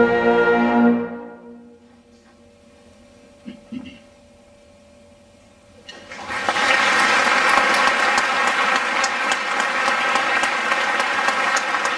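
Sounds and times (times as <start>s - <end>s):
audience applause: 5.9s - 11.9s.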